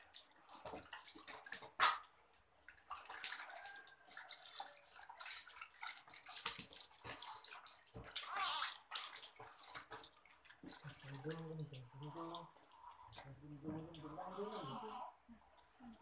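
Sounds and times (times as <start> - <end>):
water splashing in plastic tub: 0.0 - 16.0.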